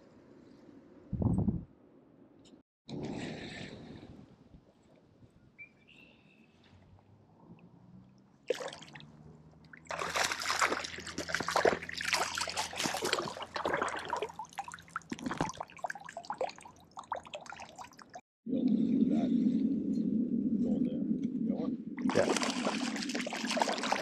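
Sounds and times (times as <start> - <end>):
fish splashing in water: 8.5 - 9.1, 9.8 - 18.2, 22.1 - 24.0.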